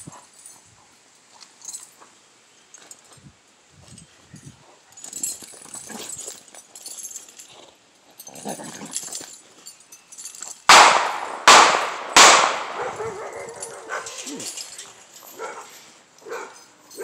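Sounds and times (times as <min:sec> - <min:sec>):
chain rattling and dragging in dirt: 0:00.0 - 0:11.4, 0:12.0 - 0:17.0
loud sharp sounds: 0:10.7 - 0:13.1.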